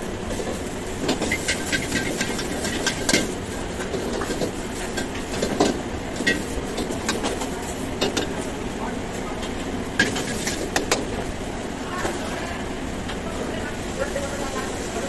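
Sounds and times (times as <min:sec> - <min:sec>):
wok burner roaring: 0:00.0 - 0:15.0
utensils clanking against a wok: 0:00.2 - 0:08.5, 0:09.4 - 0:11.2.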